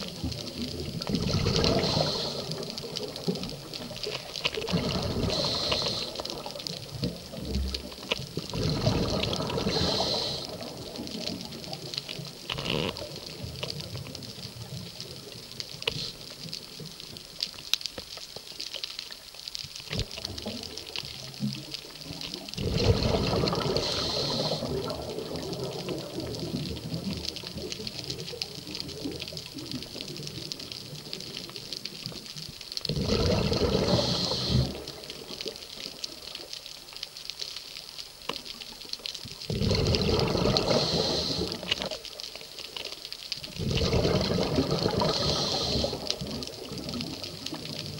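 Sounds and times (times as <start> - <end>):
exhaled bubbles underwater: 0.0 - 17.4, 19.8 - 36.6, 38.1 - 47.9
low water hiss: 0.0 - 47.9.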